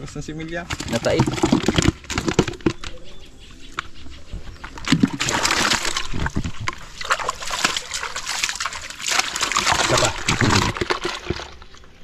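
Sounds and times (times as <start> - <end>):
pond water splashing: 4.6 - 12.0.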